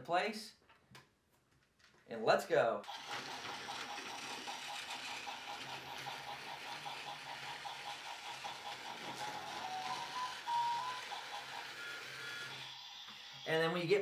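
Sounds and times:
toy train motor whirring: 0:02.8 - 0:14.0
toy train rattling on track: 0:02.9 - 0:13.6.

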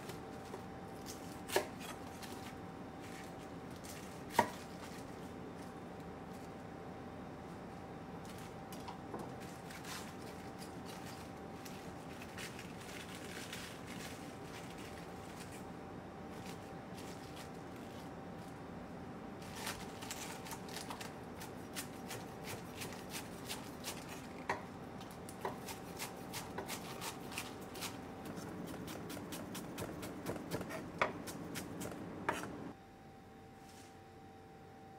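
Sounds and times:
knife cutting cabbage: 0:00.0 - 0:05.2, 0:19.4 - 0:32.7
cabbage leaves rustling: 0:09.4 - 0:15.6, 0:16.3 - 0:18.5, 0:19.4 - 0:24.4, 0:25.6 - 0:31.9.

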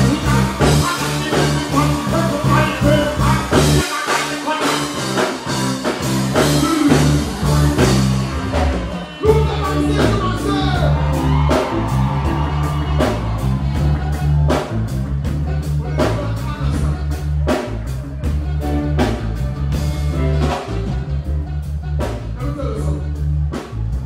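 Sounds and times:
person singing: 0:00.0 - 0:05.5, 0:06.4 - 0:10.9
electric guitar: 0:00.0 - 0:22.2
drum-kit beat: 0:00.0 - 0:24.0
heavy bass line: 0:00.0 - 0:24.0
live reggae band playing: 0:00.0 - 0:24.0.

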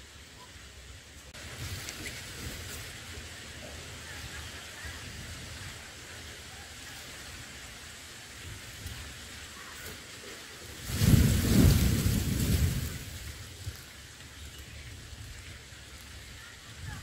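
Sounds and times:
outdoor background hiss: 0:00.0 - 0:17.0
bird rustling dry grass nest: 0:01.4 - 0:05.8, 0:08.4 - 0:17.0.

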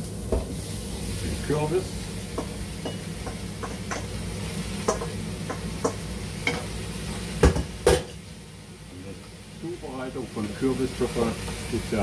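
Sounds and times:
light sizzle: 0:00.0 - 0:12.0
spoon and pieces knocking pot: 0:04.8 - 0:06.7.

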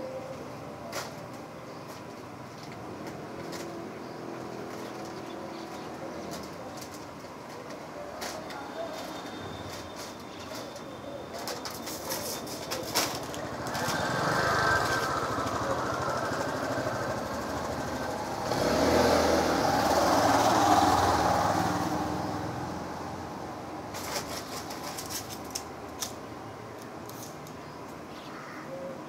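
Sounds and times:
vehicle engine passing: 0:13.4 - 0:23.4.

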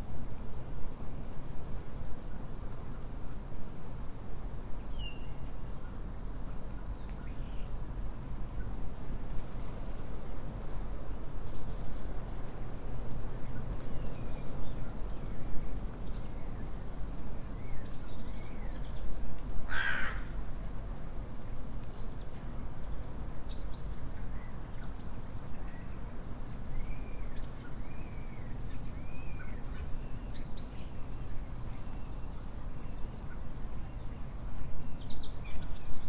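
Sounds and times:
low background noise: 0:00.0 - 0:36.0
crow cawing: 0:19.7 - 0:20.3
small birds chirping: 0:21.8 - 0:36.0.

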